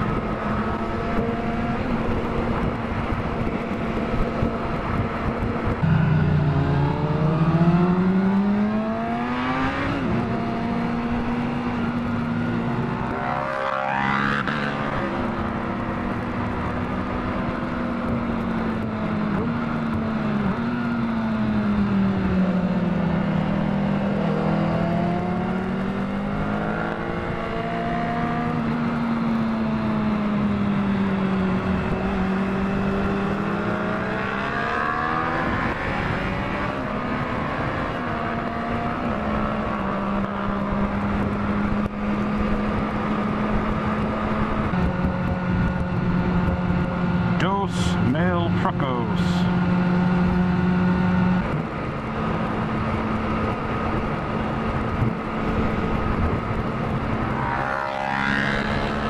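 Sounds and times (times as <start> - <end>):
motorcycle engine: 0.0 - 59.0
wind rushing: 4.8 - 8.6.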